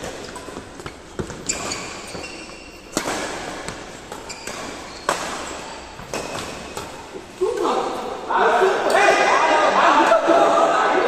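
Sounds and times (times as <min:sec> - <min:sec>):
racquets smacking shuttlecock: 0:00.0 - 0:08.2.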